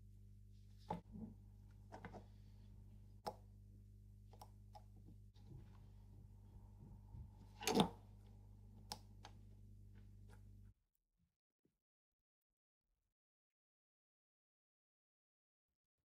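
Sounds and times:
steady low hum: 0:00.0 - 0:10.7.

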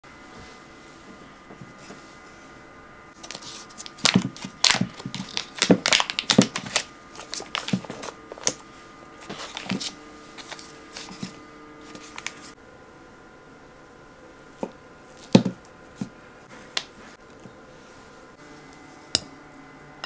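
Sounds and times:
foil wrapper crinkling: 0:03.2 - 0:08.6.

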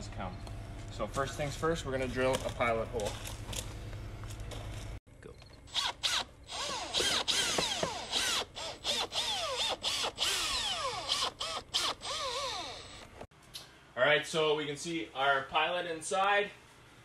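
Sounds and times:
cordless drill motor whine: 0:05.7 - 0:13.2.

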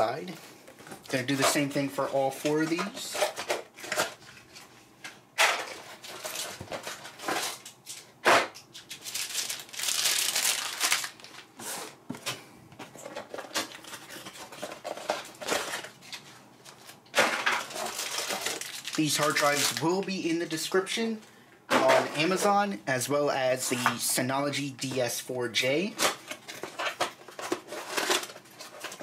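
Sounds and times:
plastic bags crinkling: 0:08.8 - 0:11.8, 0:13.1 - 0:20.6.

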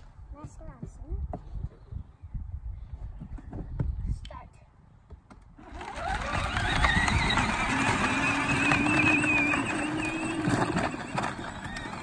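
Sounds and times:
plastic wheels crunching gravel: 0:05.6 - 0:12.0
steady motor whine: 0:05.6 - 0:12.0.

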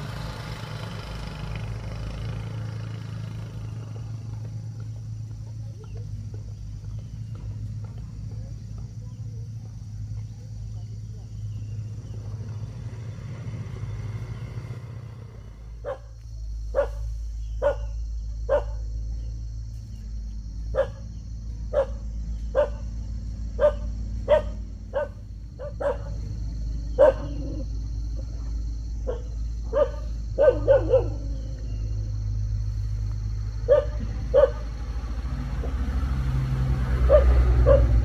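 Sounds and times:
steady low hum: 0:02.9 - 0:38.0
dog barking: 0:15.8 - 0:18.8, 0:20.7 - 0:21.1, 0:21.7 - 0:22.9, 0:23.6 - 0:26.3, 0:26.9 - 0:27.7, 0:29.0 - 0:31.5, 0:33.7 - 0:34.7, 0:37.1 - 0:38.0.

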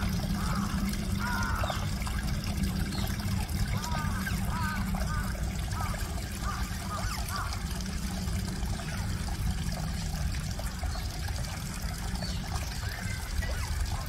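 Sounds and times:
trickling running water: 0:00.0 - 0:14.0.

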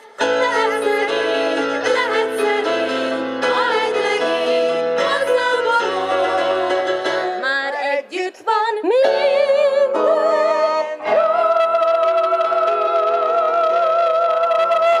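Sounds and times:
keyboard accompaniment: 0:00.0 - 0:15.0
women singing together: 0:00.0 - 0:15.0.

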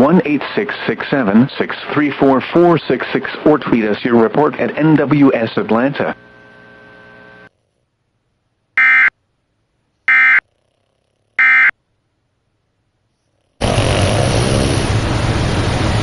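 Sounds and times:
loud steady noise: 0:13.6 - 0:16.0.

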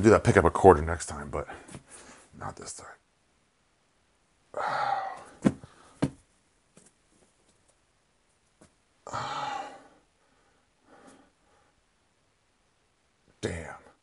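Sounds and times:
man exhaling heavily: 0:04.6 - 0:06.0, 0:09.1 - 0:10.0
dull thumps: 0:05.2 - 0:06.2.

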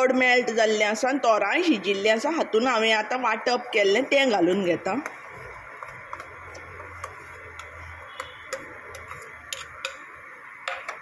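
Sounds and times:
curry simmering with ticks: 0:04.5 - 0:11.0.

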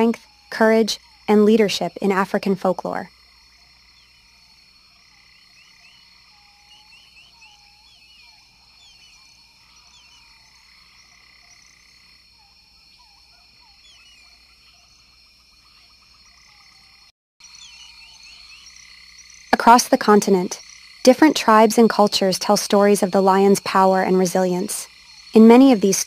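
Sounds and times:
chorus of chirping calls: 0:05.1 - 0:20.9.

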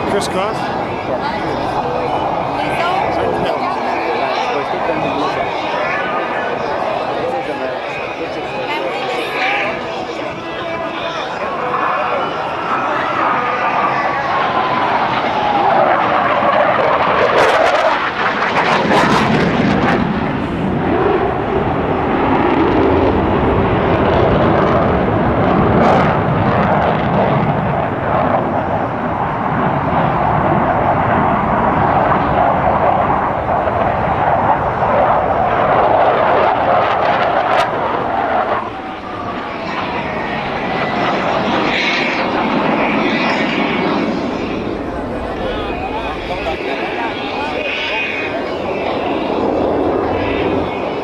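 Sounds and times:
falling jet whine: 0:00.0 - 0:51.0
jet engines rumbling overhead: 0:00.0 - 0:51.0.

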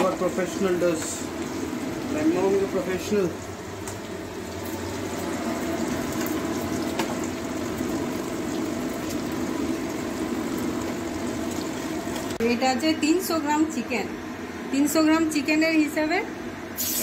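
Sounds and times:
pot of water rushing and bubbling: 0:00.0 - 0:12.4.

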